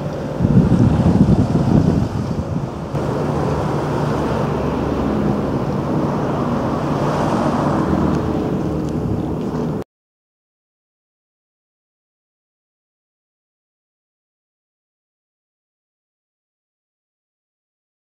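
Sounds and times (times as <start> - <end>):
low engine hum: 0.0 - 9.8
water noise: 0.0 - 9.8
wind buffeting microphone: 0.0 - 9.8.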